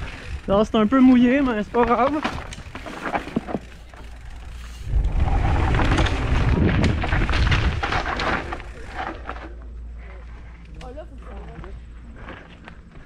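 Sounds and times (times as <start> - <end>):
bike rattling over rough trail: 0.0 - 13.0
wind buffeting microphone: 4.4 - 8.8.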